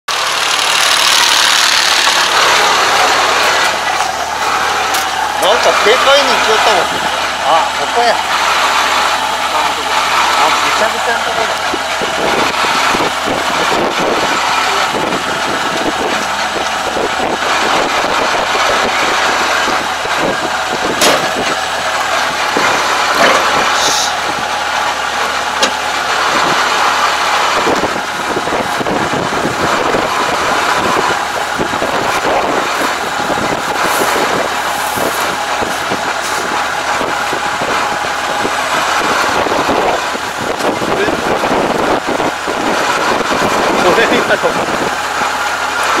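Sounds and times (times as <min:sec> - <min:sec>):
combine harvester running: 0:00.1 - 0:46.0.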